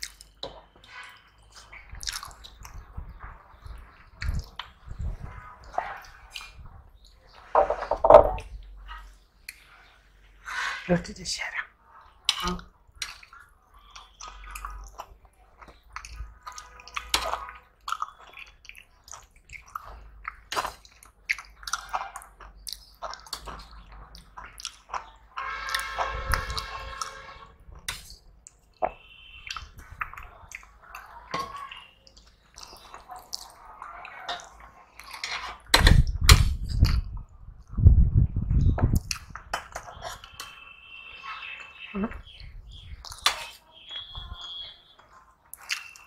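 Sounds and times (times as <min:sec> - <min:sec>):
chewing and lip-smacking: 0:00.0 - 0:07.2, 0:12.2 - 0:27.1, 0:27.8 - 0:37.8, 0:38.6 - 0:40.6, 0:42.2 - 0:46.0
wet squelching of food: 0:12.0 - 0:35.7.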